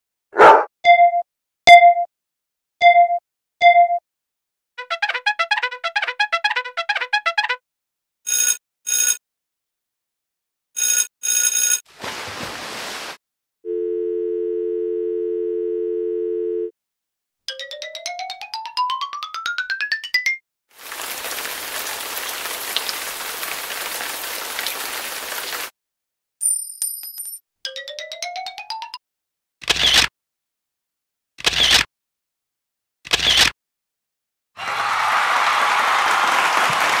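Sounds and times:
telephone dial tone: 13.7s - 16.7s.

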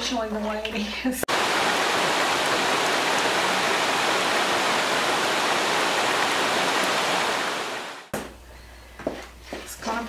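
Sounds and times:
heavy rain: 1.3s - 8.1s.

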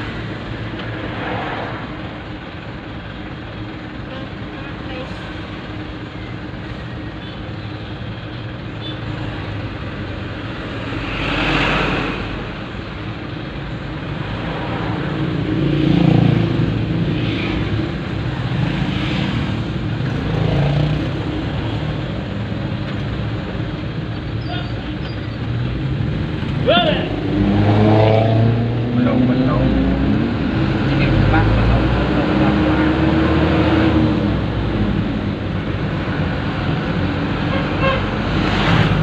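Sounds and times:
truck diesel engine running: 0.0s - 11.1s, 12.2s - 27.3s
vehicles passing close: 0.0s - 39.0s.

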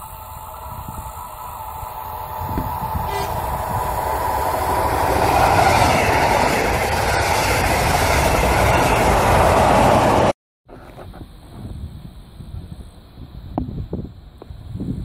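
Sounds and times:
train passing at speed: 0.0s - 10.4s.

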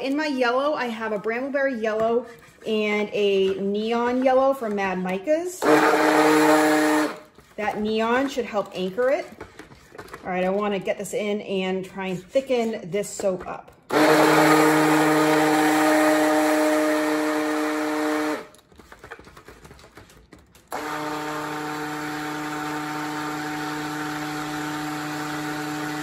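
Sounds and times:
stick blender motor humming: 5.6s - 7.4s, 13.9s - 18.6s, 20.7s - 26.0s.

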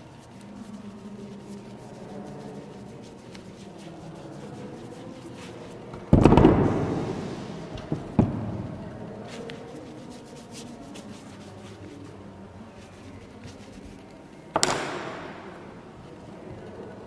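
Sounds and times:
tissue rubbing wet paper: 0.0s - 6.0s, 9.0s - 14.3s.

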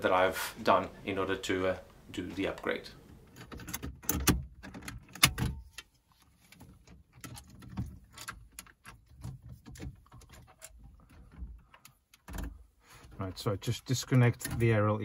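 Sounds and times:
removal tools scraping and clicking: 3.3s - 12.6s.

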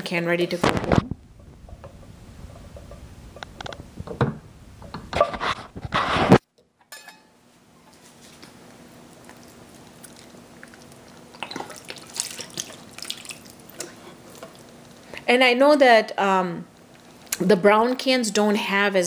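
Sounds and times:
faint steady hum: 0.0s - 19.0s
scraping into metal pot: 4.9s - 6.4s.

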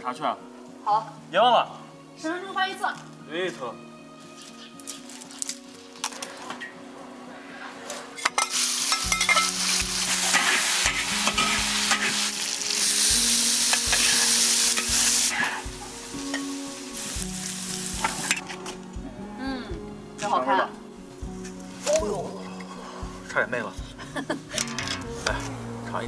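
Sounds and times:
stir-fry sizzling in a wok: 7.6s - 19.0s
metal ladle scraping a wok: 7.9s - 13.0s.

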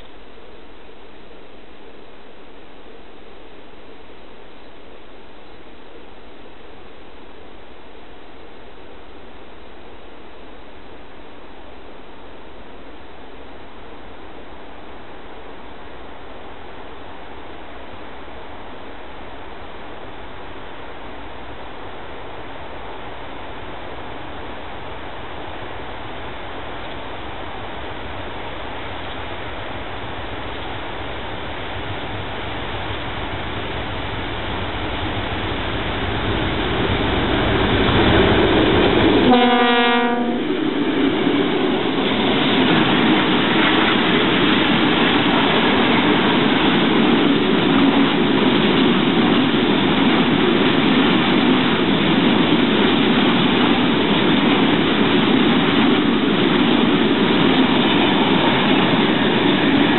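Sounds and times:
diesel locomotive engine rumble: 0.0s - 59.9s
train wheels on rails: 13.7s - 59.9s
train horn blast: 39.2s - 40.6s.

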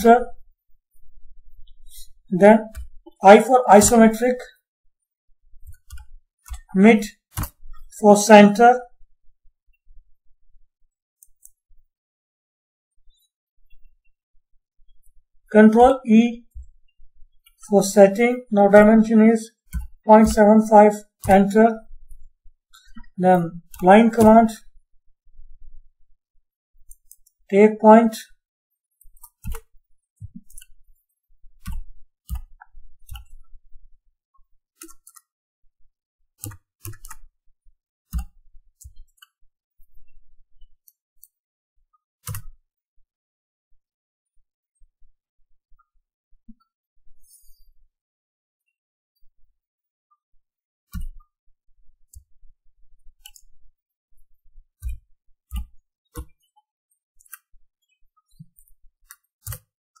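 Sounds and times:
keyboard and mouse clicks: 1.6s - 4.4s, 5.6s - 7.9s, 19.7s - 22.0s, 22.8s - 24.6s, 26.8s - 27.4s, 29.0s - 31.0s, 31.6s - 33.6s, 34.8s - 35.3s, 36.4s - 37.3s, 38.1s - 40.1s, 42.2s - 42.5s, 50.9s - 51.3s, 53.2s - 53.5s, 54.8s - 56.6s, 57.2s - 57.6s, 58.2s - 60.0s
mouse clicks: 2.7s - 3.0s, 5.6s - 6.7s, 7.4s - 7.9s, 19.7s - 20.4s, 29.0s - 29.7s, 31.6s - 33.4s, 34.8s - 35.3s, 36.4s - 37.2s, 38.1s - 40.0s, 42.2s - 42.5s, 54.8s - 56.4s
keyboard keystrokes: 7.4s - 7.6s.

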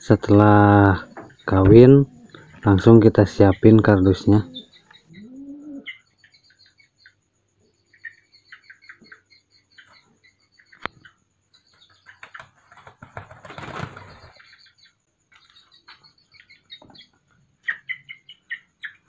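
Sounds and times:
high chirping: 0.0s - 19.0s
pigeon wings flapping: 12.2s - 14.4s.

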